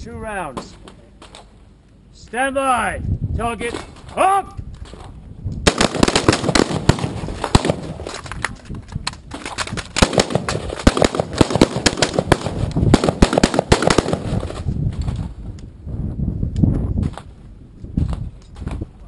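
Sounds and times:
rifles firing overlapping shots: 5.6s - 14.6s.

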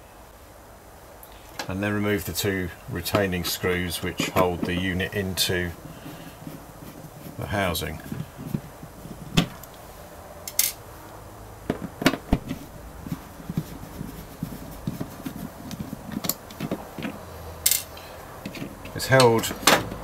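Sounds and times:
plastic panel clicks and knocks: 11.7s - 12.7s.

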